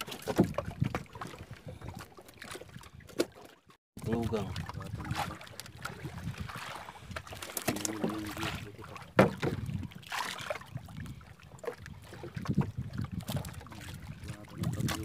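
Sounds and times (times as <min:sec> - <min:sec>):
water sloshing against boat hull: 0:00.0 - 0:15.0
knocks on boat hull: 0:09.2 - 0:09.7.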